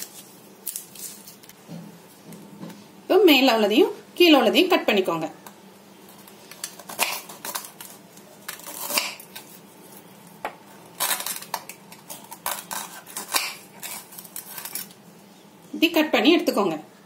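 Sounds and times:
knife scraping crunches: 0:00.0 - 0:01.5, 0:06.1 - 0:10.1, 0:10.7 - 0:15.0.

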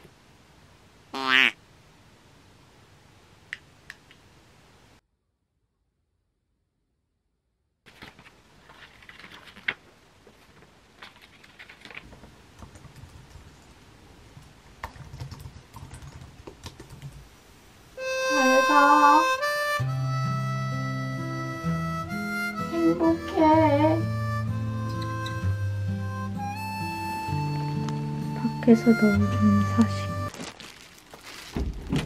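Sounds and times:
music with lead melody and bass: 0:19.2 - 0:30.3.

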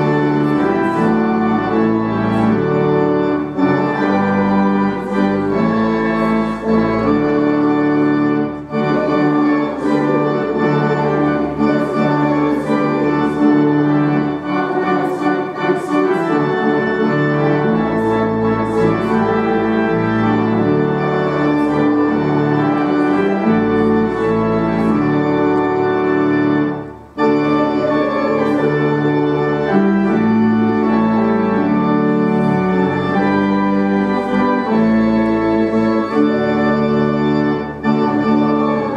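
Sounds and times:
organ playing sustained chords: 0:00.0 - 0:38.9.

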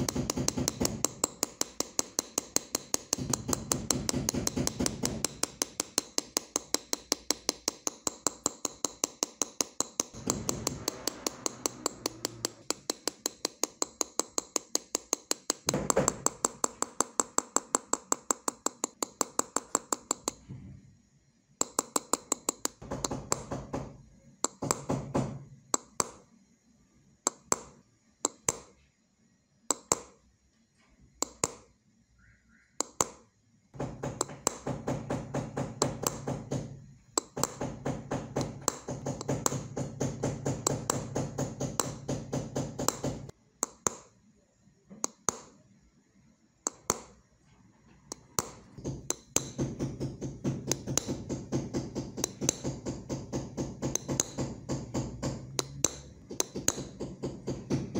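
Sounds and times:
hammer tapping engraving tool: 0:00.0 - 0:20.6, 0:21.6 - 0:26.3, 0:27.2 - 0:28.9, 0:29.7 - 0:30.3, 0:31.1 - 0:31.8, 0:32.8 - 0:44.2, 0:44.9 - 0:45.6, 0:46.7 - 0:47.2, 0:48.0 - 0:57.9.

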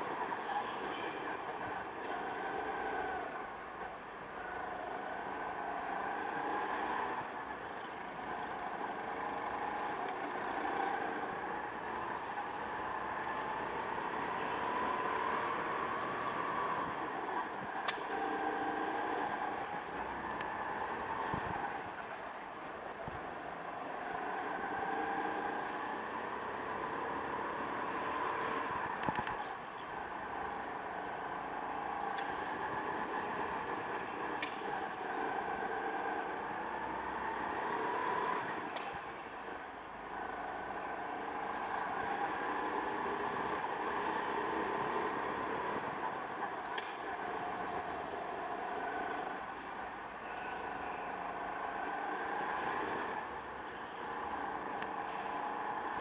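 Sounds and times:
go-kart engine revving: 0:00.0 - 0:56.0
sharp clicks: 0:34.2 - 0:35.0, 0:38.6 - 0:39.2.

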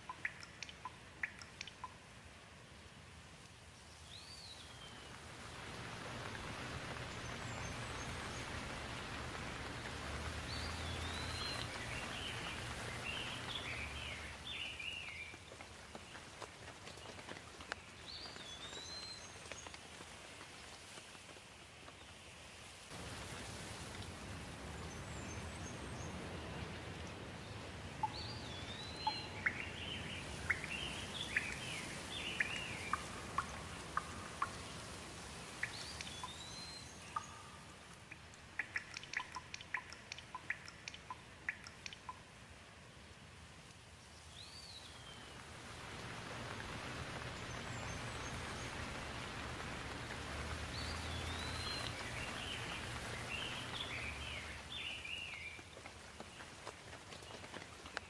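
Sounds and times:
drops ticking: 0:00.0 - 0:02.0, 0:37.0 - 0:42.3
songbird singing: 0:00.0 - 0:02.1, 0:03.6 - 0:19.9, 0:24.6 - 0:42.4, 0:43.9 - 0:58.0
steady rain: 0:00.0 - 0:58.0.

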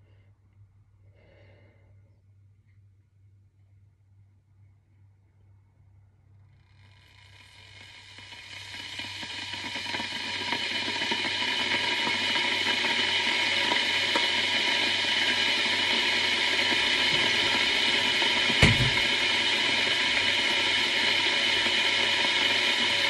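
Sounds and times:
electric kettle hissing: 0:06.4 - 0:23.0.

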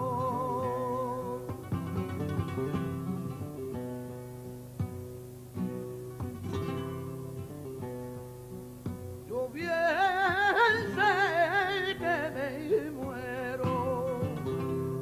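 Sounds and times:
man singing ornamented line: 0:00.0 - 0:01.7, 0:09.3 - 0:15.0
acoustic guitar: 0:00.0 - 0:15.0.

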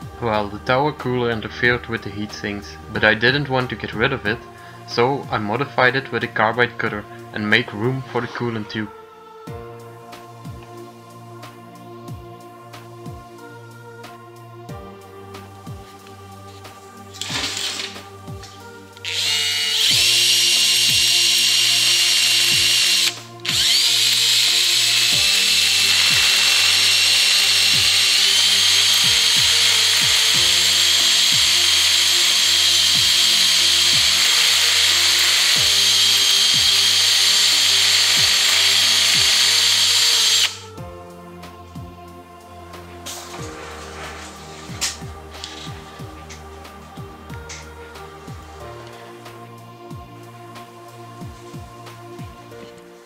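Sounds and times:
background music: 0:00.0 - 0:53.0
rotary tool whining: 0:16.5 - 0:40.8, 0:44.3 - 0:46.4.

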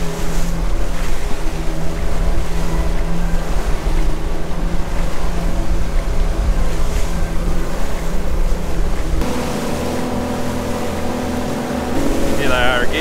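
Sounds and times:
motorboat engine humming: 0:00.0 - 0:13.0
rushing wake water: 0:00.0 - 0:13.0.

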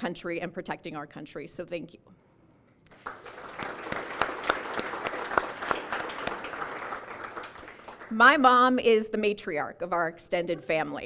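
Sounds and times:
audience applauding: 0:02.9 - 0:08.2.

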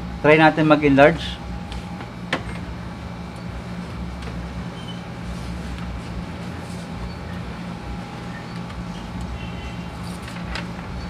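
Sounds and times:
copier mechanical hum: 0:00.0 - 0:11.0
paper rustling: 0:09.7 - 0:10.8.

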